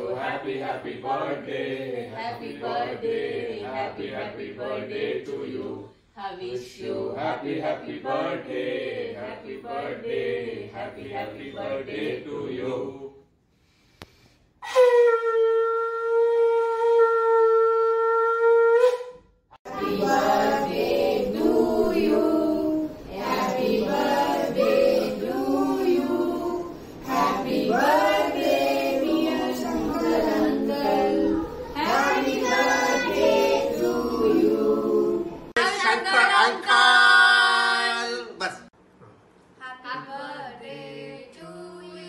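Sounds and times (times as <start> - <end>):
adults and children singing: 0.0 - 13.2, 19.6 - 38.3, 39.6 - 42.0
conch shell blown: 14.6 - 19.5.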